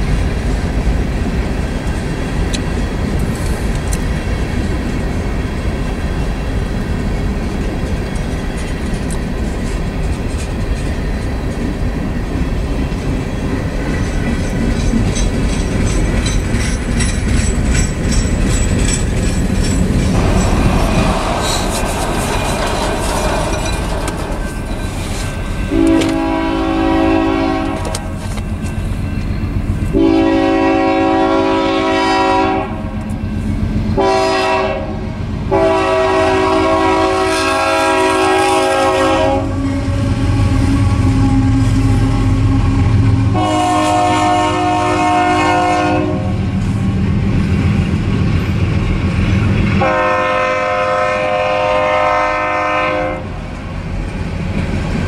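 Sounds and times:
freight cars clickety-clack: 0.0 - 30.0
train rumbling: 0.0 - 55.0
train horn blasts: 25.6 - 28.2, 29.9 - 33.0, 33.9 - 46.6, 49.8 - 53.4.

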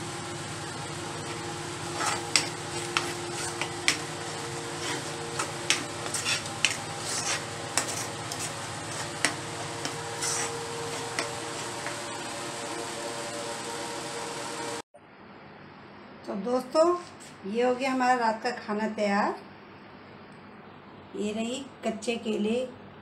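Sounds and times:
steady background hum: 0.0 - 23.0
metal spoon scraping a pan: 1.8 - 12.0.

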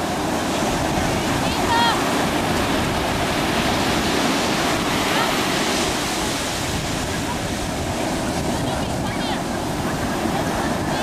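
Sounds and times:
ocean surf breaking: 0.0 - 11.0.

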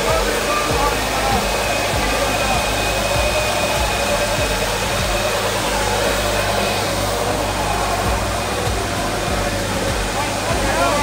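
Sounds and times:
tractor diesel engine at full load: 0.0 - 11.0.

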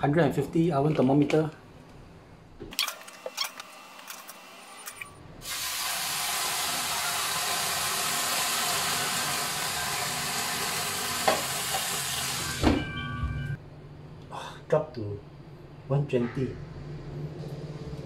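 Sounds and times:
water hissing into steam: 5.4 - 12.6.

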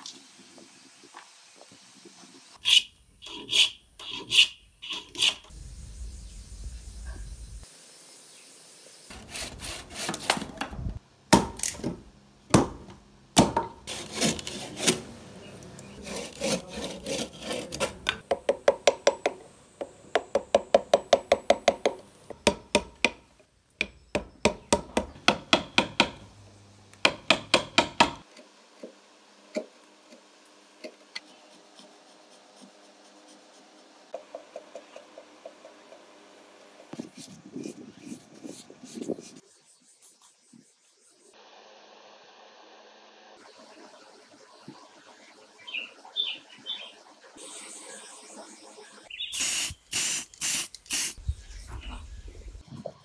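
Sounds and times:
saw cutting wood: 9.1 - 10.5, 13.9 - 15.2, 15.9 - 18.2
tool scraping wood: 9.1 - 10.6, 13.8 - 15.1, 15.9 - 18.2
carving tool cuts: 15.9 - 18.2.

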